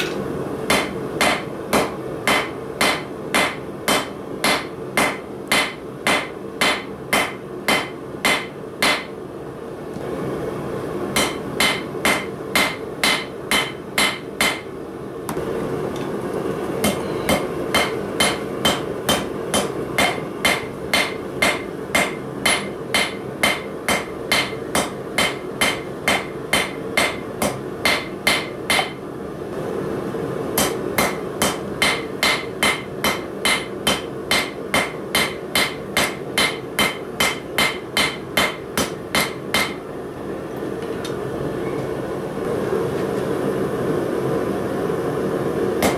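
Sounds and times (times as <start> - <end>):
hammer striking steel on anvil: 0.0 - 9.1, 11.2 - 14.7, 16.8 - 29.0, 30.6 - 39.8.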